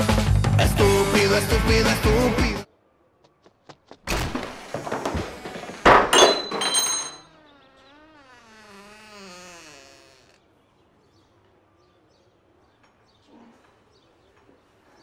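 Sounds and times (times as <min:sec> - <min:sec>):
heavy thuds: 0:04.0 - 0:07.1
door hinges creaking: 0:04.1 - 0:10.4
rattling metallic clatter: 0:05.9 - 0:07.3.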